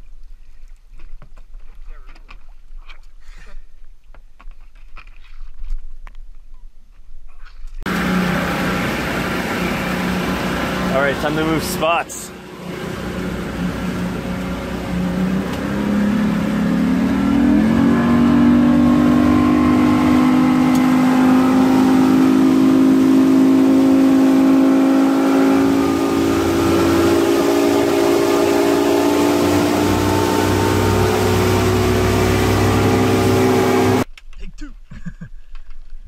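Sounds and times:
outboard engine throttling up: 7.9 - 34.1.

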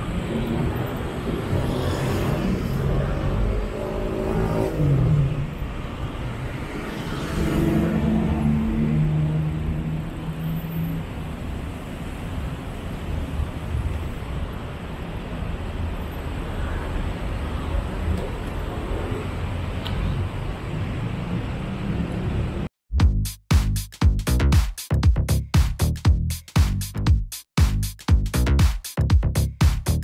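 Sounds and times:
passing traffic: 0.0 - 22.8.

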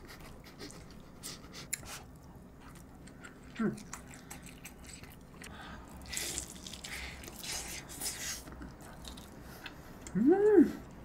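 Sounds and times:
person chewing with smacking sounds: 0.0 - 11.0
person humming mmm: 10.0 - 10.9.

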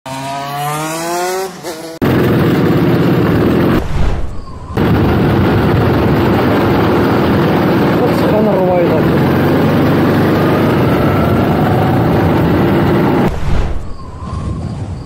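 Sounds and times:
go-kart engine running hard: 0.1 - 3.7, 5.5 - 13.3
wind buffeting microphone: 3.4 - 15.0.

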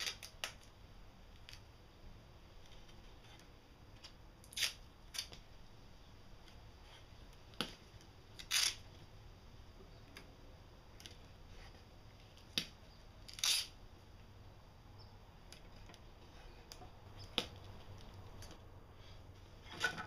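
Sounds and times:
tape tearing off roll: 0.0 - 0.7, 4.4 - 5.4, 8.4 - 8.9, 13.2 - 13.8.

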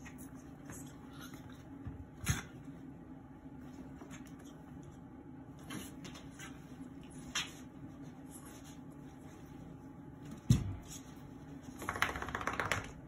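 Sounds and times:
dogs scratching and rustling: 3.6 - 10.0.

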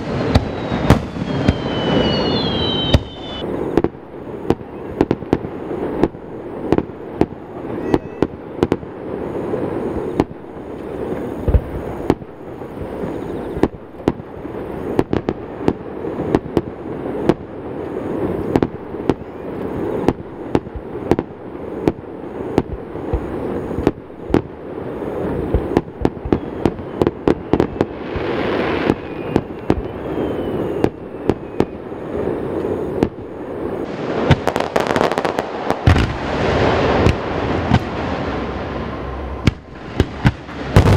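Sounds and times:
fireworks bangs: 0.0 - 40.9
fireworks crackle: 0.0 - 40.9
echoing rumble: 33.1 - 40.9.

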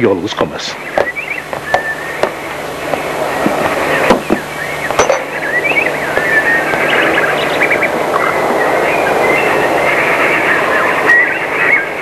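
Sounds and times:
steady hiss: 0.0 - 12.0
sharp knocks: 1.0 - 5.3.

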